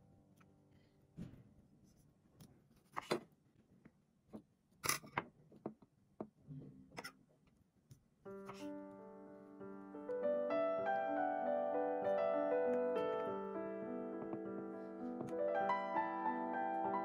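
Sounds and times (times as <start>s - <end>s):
piano music: 8.3s - 17.0s.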